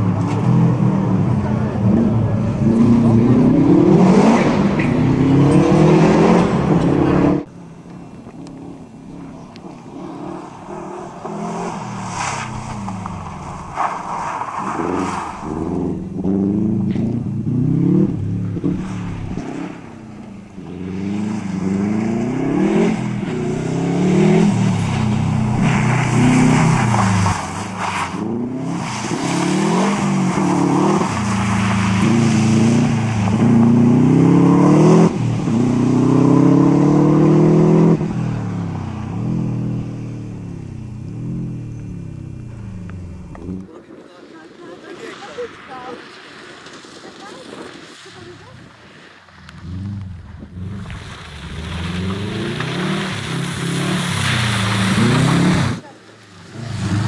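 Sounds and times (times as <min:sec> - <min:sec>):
rally car engine revving: 0:00.0 - 0:07.6, 0:08.3 - 0:43.7, 0:49.4 - 0:57.0.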